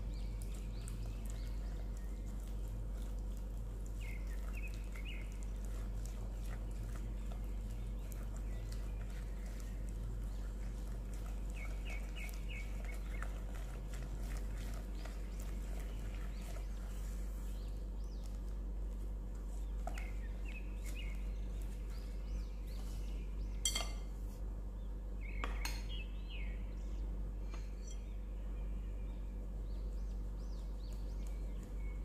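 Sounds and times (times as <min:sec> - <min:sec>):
whisk scraping glass bowl: 0:00.4 - 0:18.4.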